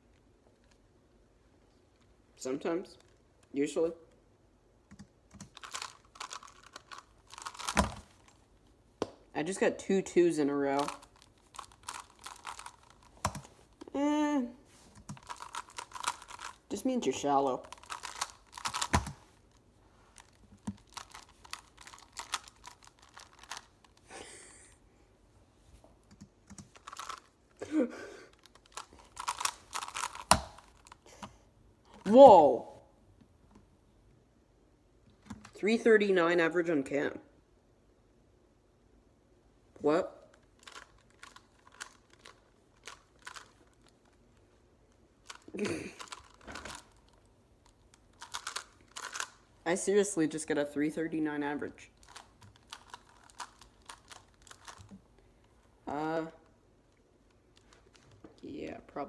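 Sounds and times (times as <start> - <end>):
plastic puzzle clicking: 15.1 - 16.6, 17.7 - 19.2, 20.2 - 23.7, 28.3 - 31.0, 45.3 - 47.0, 48.2 - 49.4, 52.0 - 54.9.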